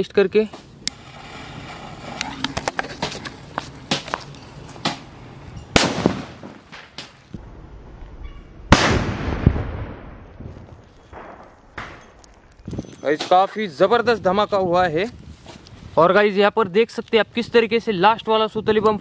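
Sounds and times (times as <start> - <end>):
firecracker blast: 5.7 - 12.5
burning fuse clicks and cracks: 10.3 - 12.8.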